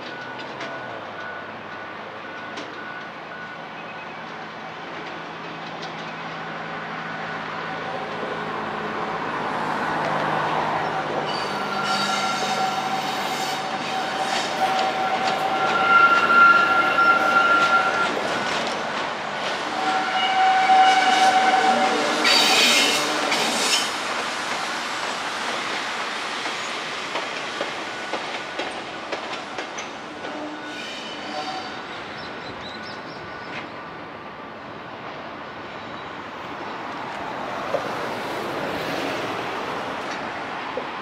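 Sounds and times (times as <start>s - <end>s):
train wheels clicking over rail joints: 0.0s - 3.2s, 4.2s - 6.5s, 22.3s - 30.4s.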